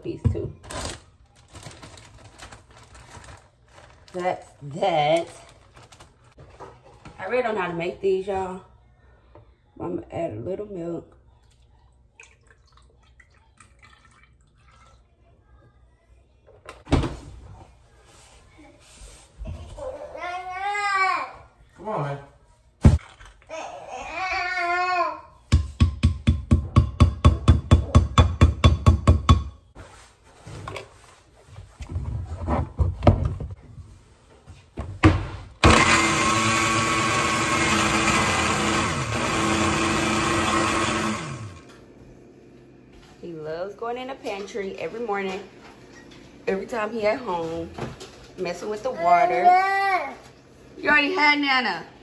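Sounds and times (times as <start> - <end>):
electric blender running: 35.6 - 43.0.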